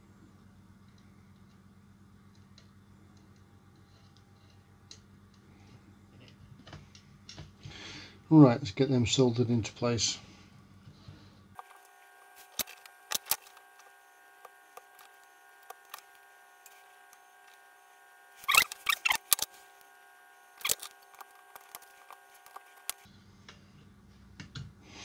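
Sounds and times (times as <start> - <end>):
faint steady whine: 0.0 - 25.0
soldering crackles and taps: 11.6 - 17.7, 18.8 - 23.1.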